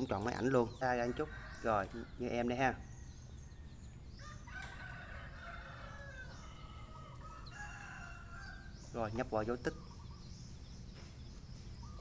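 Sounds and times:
rooster crowing: 4.2 - 8.8.

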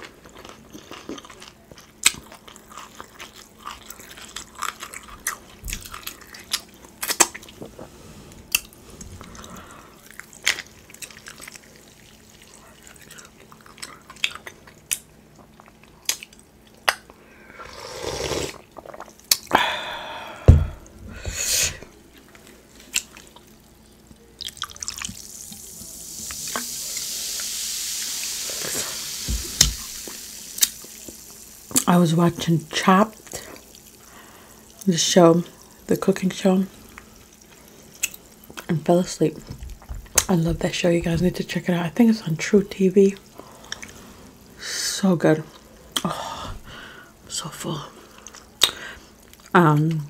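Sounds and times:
long soft hiss: 19.5 - 22.0, 25.0 - 38.4
loud knock: 20.5 - 20.8
wet mouth clicks: 48.3 - 48.8.

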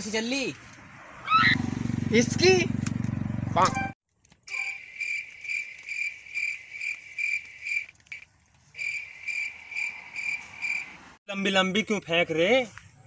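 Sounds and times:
cricket chirping: 4.5 - 8.2, 8.8 - 11.1.

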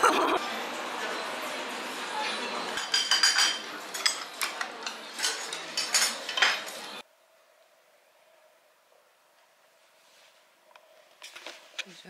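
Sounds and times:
restaurant background noise: 0.0 - 12.0
tableware clinking on steel pot: 2.8 - 6.9.

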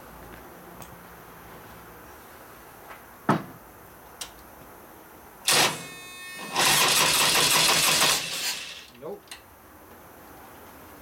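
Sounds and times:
electric starter cranking engine: 5.5 - 9.0.

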